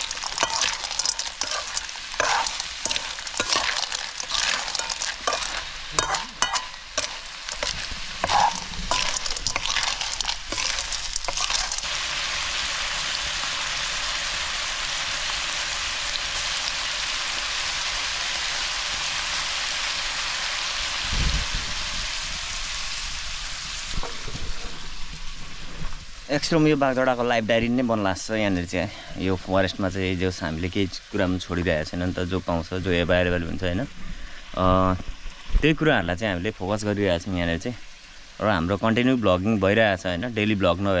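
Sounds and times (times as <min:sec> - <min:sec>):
ladle scraping metal wok: 0:00.0 - 0:12.0
frying sizzle: 0:00.0 - 0:41.0.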